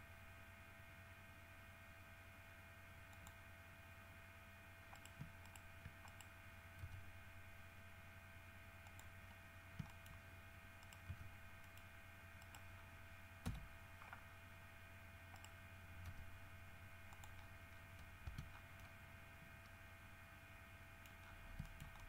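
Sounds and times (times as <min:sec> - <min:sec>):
faint steady hum: 0:00.0 - 0:22.0
computer mouse and keyboard clicks: 0:03.1 - 0:03.4, 0:04.9 - 0:07.0, 0:08.8 - 0:09.2, 0:09.8 - 0:10.2, 0:10.8 - 0:12.8, 0:13.4 - 0:14.2, 0:15.3 - 0:16.3, 0:17.1 - 0:19.8, 0:21.0 - 0:22.0.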